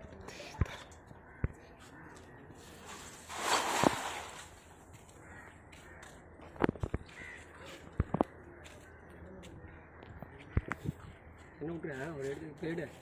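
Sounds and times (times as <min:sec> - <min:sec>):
net splashing into water: 0:02.9 - 0:04.6.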